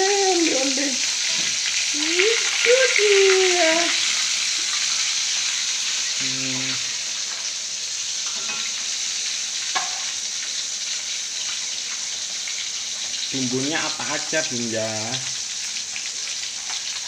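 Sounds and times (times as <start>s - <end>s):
fish sizzling in oil: 0.0s - 17.0s
metal spatula stirring in pan: 8.2s - 8.7s
sharp tap on pan: 9.7s - 10.0s.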